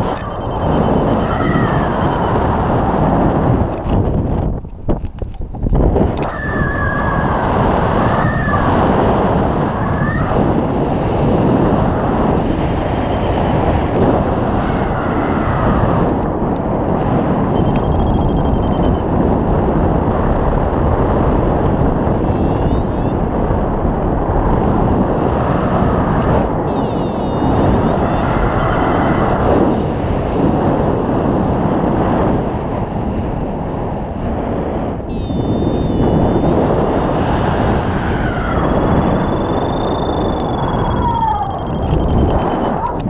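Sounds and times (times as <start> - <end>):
rapid high beeps: 0.0 - 2.4, 12.4 - 13.6, 17.6 - 19.0, 22.3 - 23.1, 26.7 - 29.4, 35.1 - 36.5, 38.4 - 42.8
wind rushing over microphone: 0.0 - 43.0.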